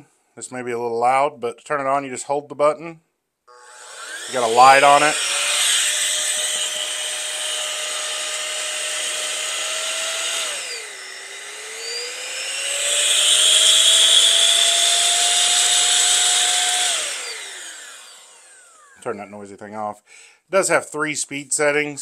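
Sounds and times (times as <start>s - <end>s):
air duster motor whine: 3.5s - 19.1s.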